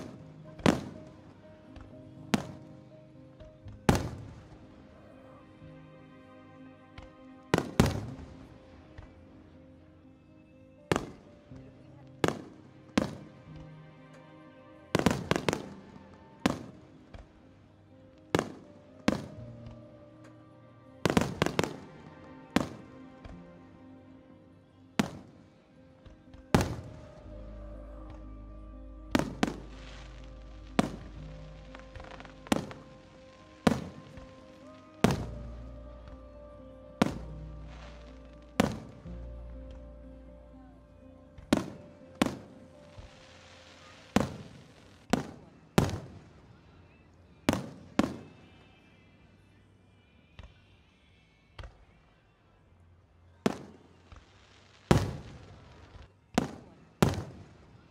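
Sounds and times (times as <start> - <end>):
music playing: 0.0 - 46.6.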